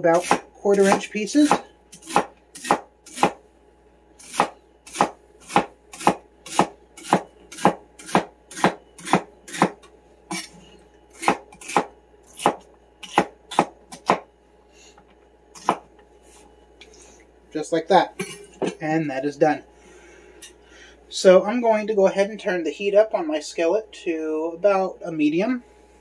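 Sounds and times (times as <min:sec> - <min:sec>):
knife chopping celery on a board: 0:00.1 - 0:03.4, 0:04.2 - 0:14.2, 0:15.6 - 0:15.9.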